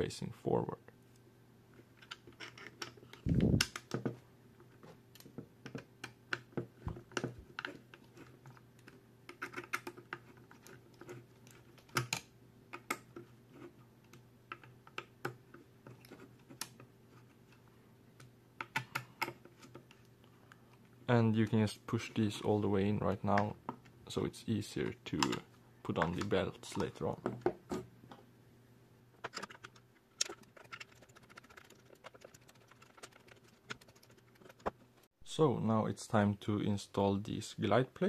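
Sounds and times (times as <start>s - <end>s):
plastic parts clicking and tapping: 5.1s - 13.3s, 29.2s - 34.8s.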